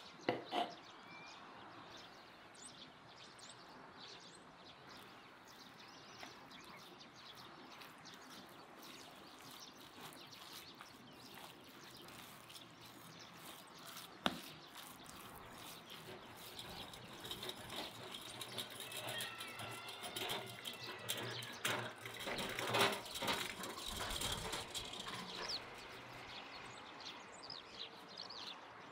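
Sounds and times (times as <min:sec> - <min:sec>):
bird chirps: 0:00.0 - 0:22.3.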